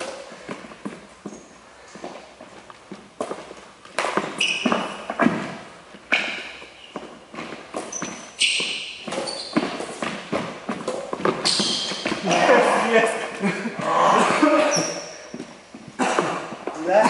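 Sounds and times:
shoes squeaking: 0.0 - 17.0.

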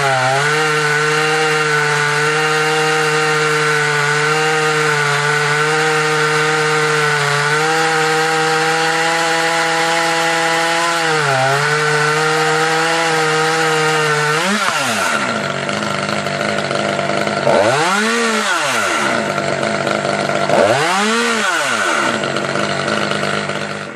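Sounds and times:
chainsaw revving: 0.0 - 23.9.

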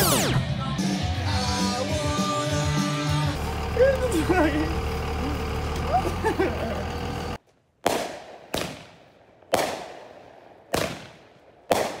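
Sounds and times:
background music: 0.0 - 3.4
fireworks bangs with echo: 7.8 - 12.0.

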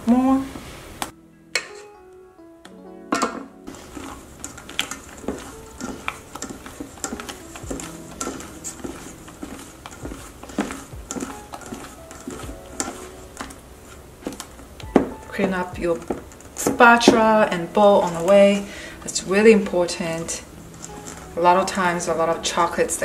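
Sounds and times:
spatula clicking on metal bowl: 3.7 - 13.6
spatula scraping and squishing: 3.7 - 23.0.

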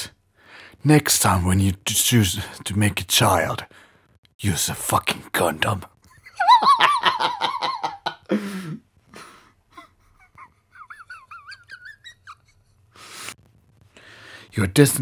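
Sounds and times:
breath: 0.3 - 0.8, 3.7 - 4.2, 13.0 - 14.5
man giggling: 6.1 - 12.8.

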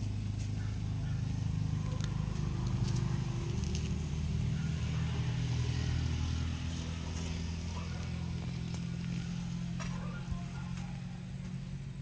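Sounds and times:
vehicle engine humming: 0.0 - 12.0.

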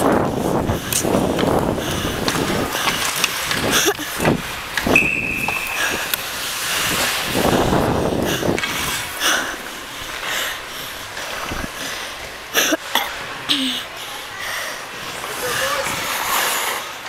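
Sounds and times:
wind noise on microphone: 0.0 - 10.0, 11.4 - 11.9
ice skates scraping: 0.0 - 17.0
steady high tone: 5.0 - 6.2.

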